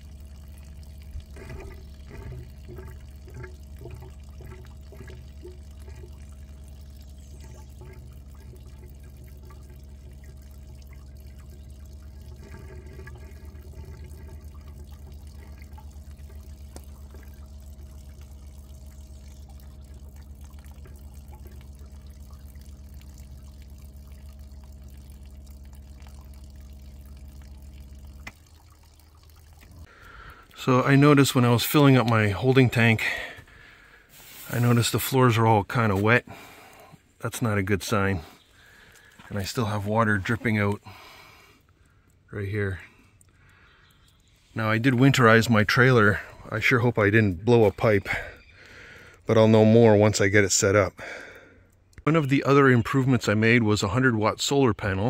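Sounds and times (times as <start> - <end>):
hose water running into tank: 0.0 - 55.0
steady low hum: 0.0 - 55.0
water drips and splashes: 0.0 - 55.0.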